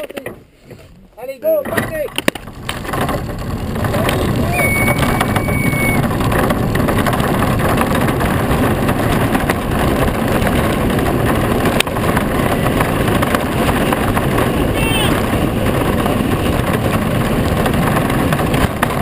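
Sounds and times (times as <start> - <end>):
wheels rumbling on asphalt: 0.0 - 19.0
thin whistle: 4.5 - 6.0.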